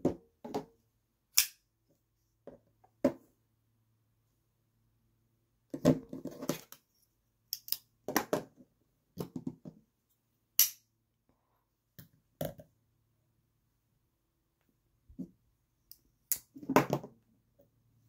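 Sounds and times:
folding knives clicking on a mat: 7.5 - 7.9.

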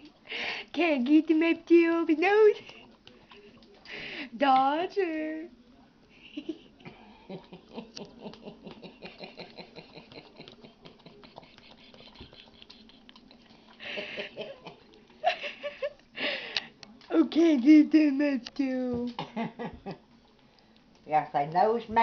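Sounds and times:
dog licking and lip-smacking: 1.2 - 4.6, 7.2 - 19.2, 20.0 - 22.0.

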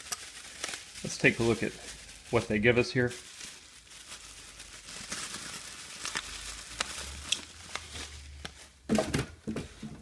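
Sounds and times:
paper and metal hooks rustling: 0.0 - 1.8
bubble wrap crinkling: 0.0 - 9.0.

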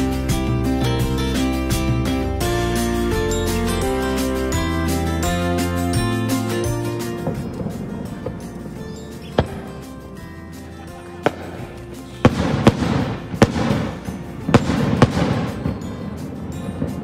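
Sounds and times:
fireworks exploding: 6.9 - 17.0.

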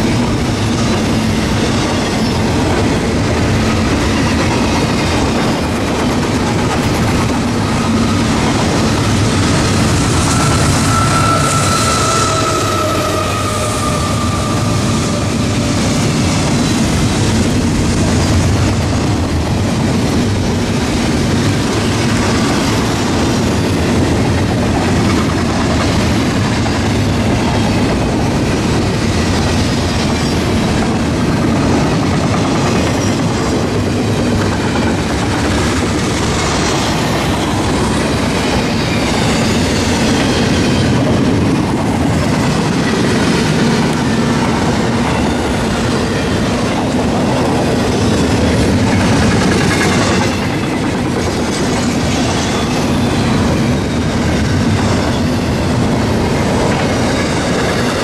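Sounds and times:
train wheels on rails: 0.0 - 58.0.

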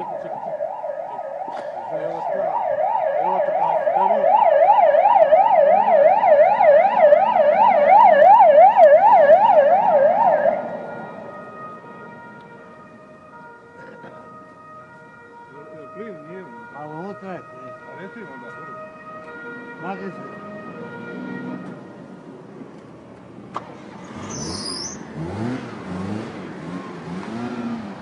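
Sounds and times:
siren yelping: 0.0 - 21.8.

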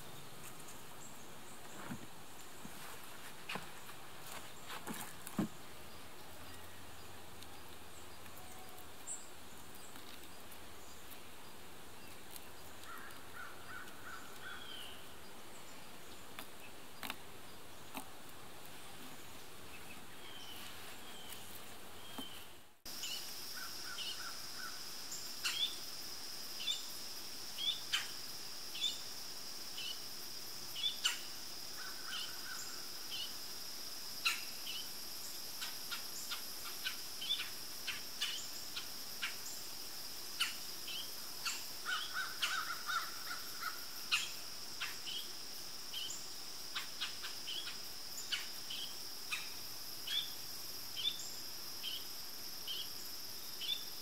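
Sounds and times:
insects trilling: 0.0 - 18.2, 19.2 - 54.0
crow cawing: 41.9 - 43.8.

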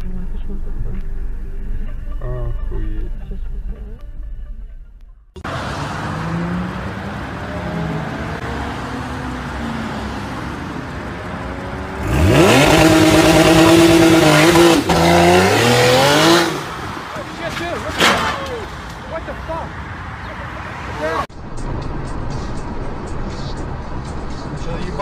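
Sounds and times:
car engine revving: 5.4 - 19.1.

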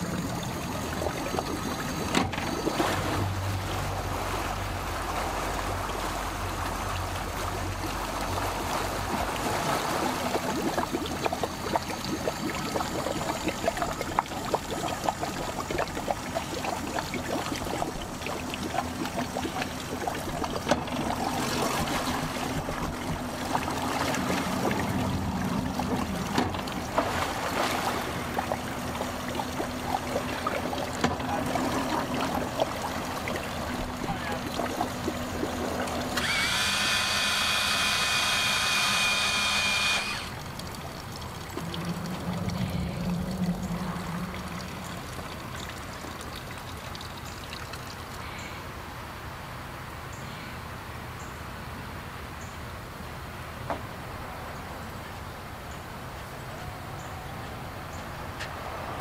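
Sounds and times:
outboard motor idling: 0.0 - 48.6
hydraulic pump whining: 28.3 - 41.0.

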